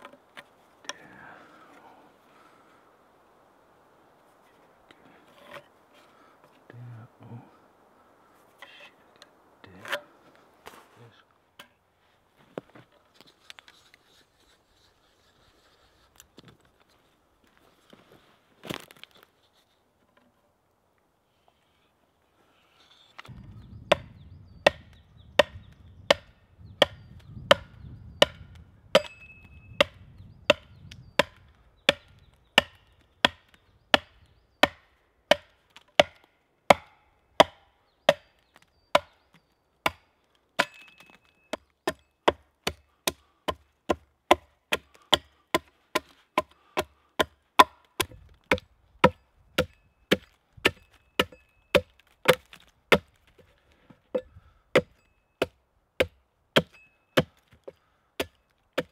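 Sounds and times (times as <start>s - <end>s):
axe chopping log: 23.9s - 39.2s, 39.8s - 53.2s, 54.2s - 58.9s.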